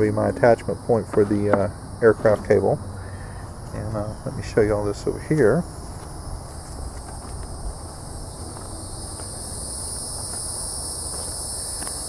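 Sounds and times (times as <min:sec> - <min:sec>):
crickets chirping: 0:00.0 - 0:12.0
footsteps on dirt and leaves: 0:01.0 - 0:02.8, 0:04.6 - 0:12.0.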